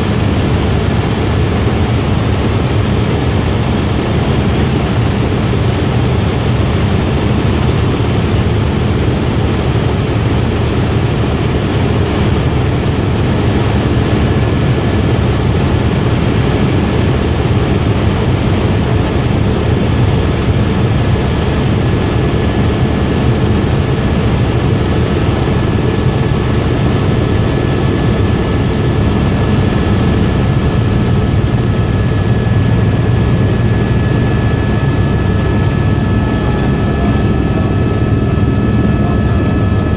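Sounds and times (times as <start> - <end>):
helicopter rotor and engine drone: 0.0 - 39.9
faint high whine: 25.0 - 39.9.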